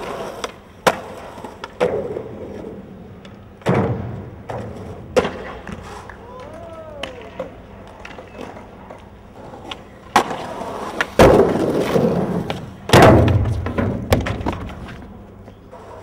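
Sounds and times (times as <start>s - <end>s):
skateboard impact: 0.0s - 16.0s
skateboard wheels rolling: 0.0s - 16.0s
skateboard wheels scraping concrete: 0.0s - 16.0s.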